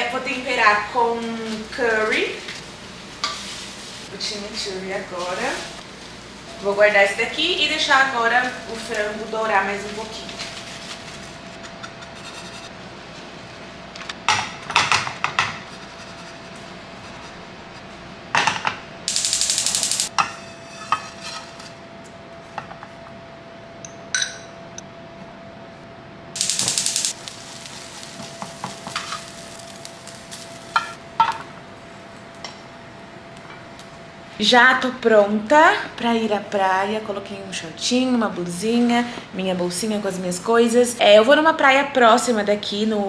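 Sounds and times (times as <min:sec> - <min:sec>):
spatula scraping frying pan: 0:12.0 - 0:12.7
faint steady hum: 0:15.7 - 0:43.0.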